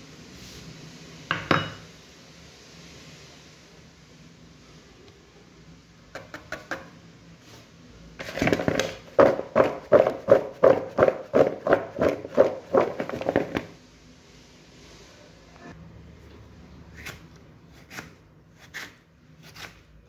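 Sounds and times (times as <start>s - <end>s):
potato sticks rattling in bowl: 8.2s - 13.7s.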